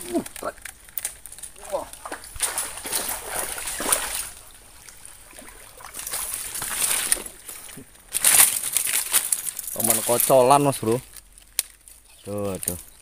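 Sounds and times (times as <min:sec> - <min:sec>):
fish thrashing water splashing: 0:01.7 - 0:09.1.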